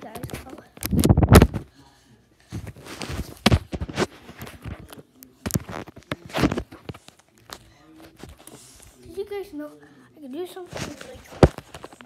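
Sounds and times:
rustling: 0:10.5 - 0:12.0.

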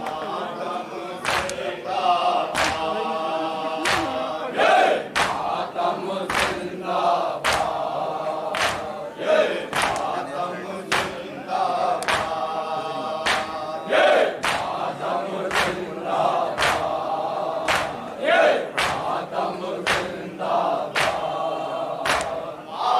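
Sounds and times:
men chanting in unison: 0:00.0 - 0:22.9
hands beating chests: 0:02.6 - 0:02.9, 0:05.1 - 0:05.5, 0:08.6 - 0:08.9, 0:09.7 - 0:10.1, 0:10.9 - 0:11.2, 0:12.0 - 0:12.4, 0:13.2 - 0:13.6, 0:14.4 - 0:14.8, 0:16.6 - 0:16.9, 0:17.7 - 0:18.0, 0:18.7 - 0:19.1, 0:20.9 - 0:21.3, 0:22.0 - 0:22.4.

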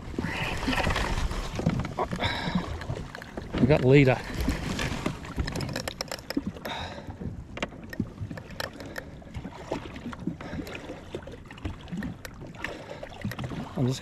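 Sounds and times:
water slapping against hull: 0:00.0 - 0:14.0
small knocks and clicks: 0:02.8 - 0:06.8, 0:07.5 - 0:09.2.

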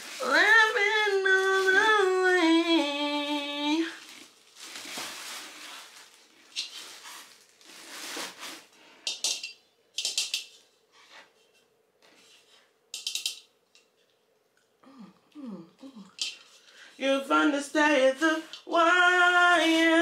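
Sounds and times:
plastic wrapping crinkling: 0:00.0 - 0:08.9
pans and lids handled: 0:09.1 - 0:11.6, 0:13.0 - 0:13.5.

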